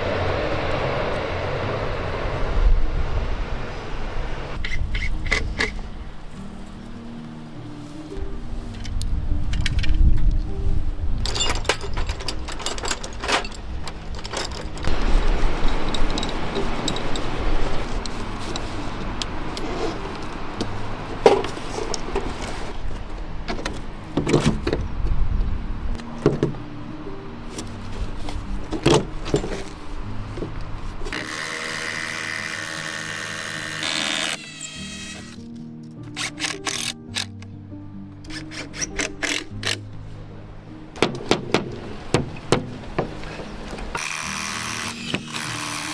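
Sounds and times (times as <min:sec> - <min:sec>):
metal parts clinking: 0:11.2 - 0:14.9, 0:15.6 - 0:17.3, 0:36.1 - 0:37.4
wooden panels knocking: 0:41.0 - 0:43.2.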